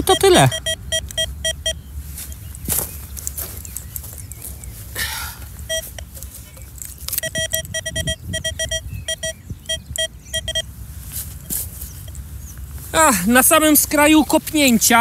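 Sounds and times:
metal detector beeping: 0.0 - 2.5, 5.6 - 10.8.

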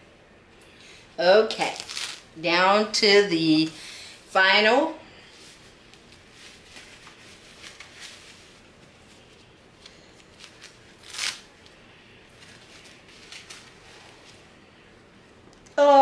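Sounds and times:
packing wrap rustling and crackling: 1.6 - 2.3, 10.2 - 11.7, 12.4 - 14.4.

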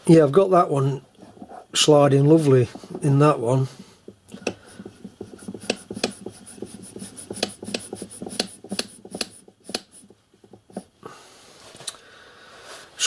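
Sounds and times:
metal piston clicking and rubbing: 4.0 - 10.9.

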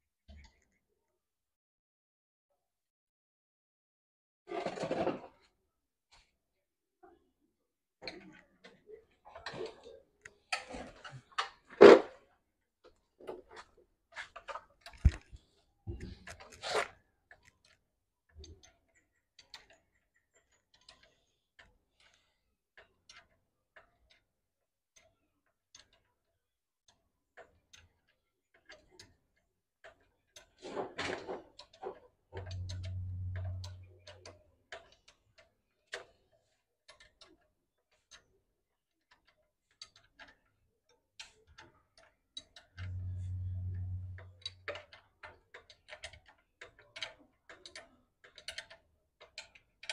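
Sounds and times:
steady low hum: 32.4 - 34.0, 42.8 - 44.6.

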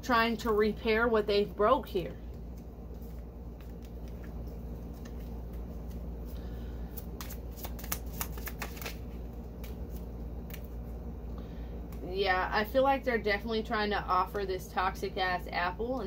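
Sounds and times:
low steady hum: 0.0 - 16.0
cards flicking and slapping: 2.4 - 10.8.

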